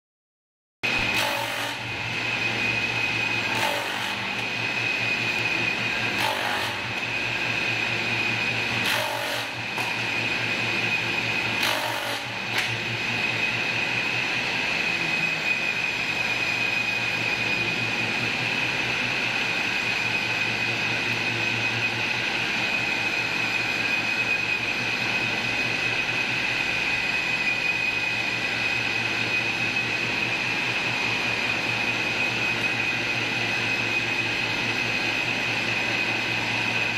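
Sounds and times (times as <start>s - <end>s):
woodworking machine motor whine: 0.8s - 36.9s
wood strips being cut: 0.9s - 17.7s.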